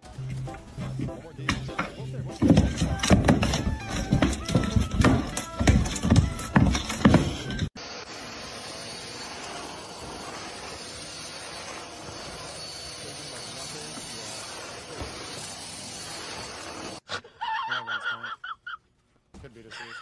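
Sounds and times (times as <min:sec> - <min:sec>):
vacuum cleaner running: 0:03.6 - 0:17.0.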